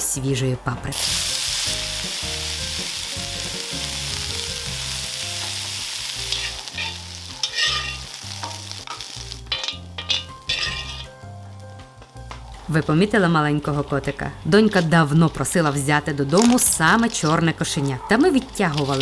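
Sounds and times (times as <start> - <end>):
peppers sizzling in a wok: 0.9 - 19.0
stirring scrapes and knocks: 6.3 - 11.2, 14.5 - 19.0.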